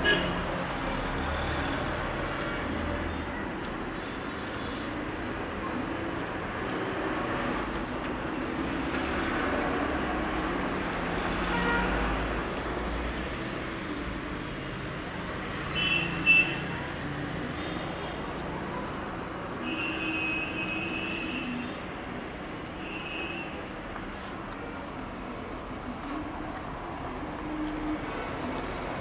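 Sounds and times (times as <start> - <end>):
passing vehicles: 0.0 - 29.0.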